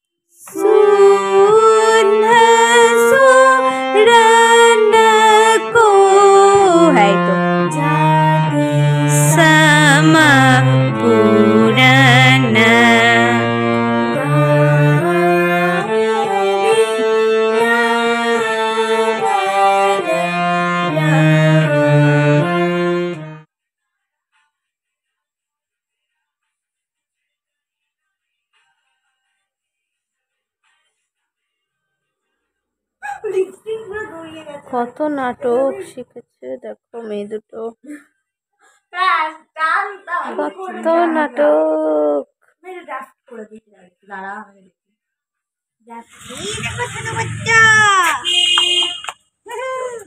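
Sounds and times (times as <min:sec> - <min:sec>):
harmonium melody: 0:00.5 - 0:23.5, 0:46.2 - 0:49.1.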